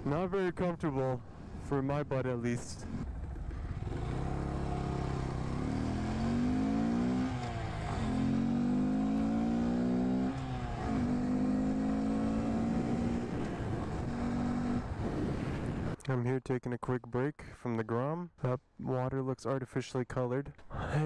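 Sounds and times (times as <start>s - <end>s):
motorcycle engine revving: 2.8s - 16.0s.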